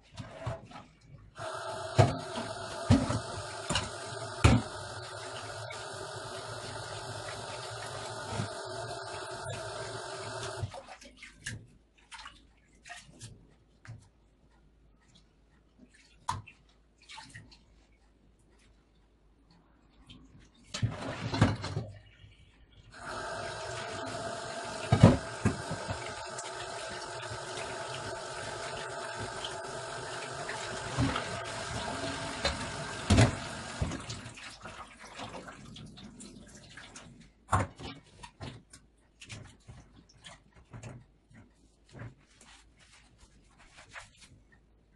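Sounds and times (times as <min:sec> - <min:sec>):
tap water running: 0:01.4 - 0:10.7, 0:23.0 - 0:37.0
tap running into sink: 0:23.0 - 0:34.2.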